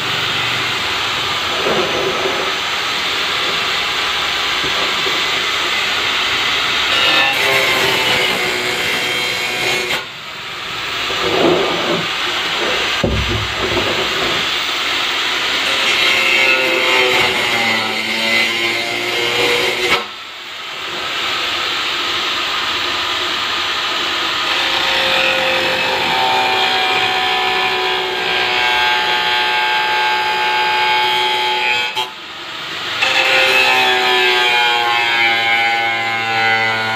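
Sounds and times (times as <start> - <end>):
angle grinder cutting plastic: 0.1 - 20.1.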